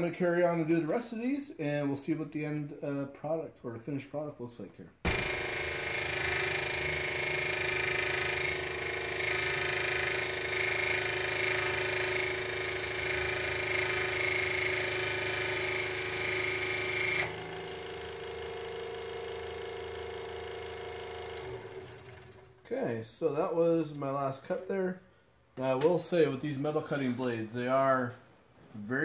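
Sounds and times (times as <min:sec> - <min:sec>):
scroll saw cutting steel: 0:05.1 - 0:17.6
saw motor humming: 0:05.1 - 0:22.5.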